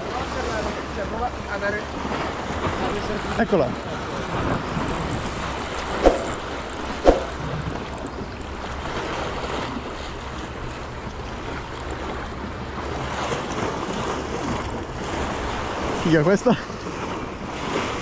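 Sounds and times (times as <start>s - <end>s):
sea water rushing: 0.0s - 18.0s
wind noise on microphone: 2.4s - 16.0s
sharp knocks: 5.4s - 7.6s.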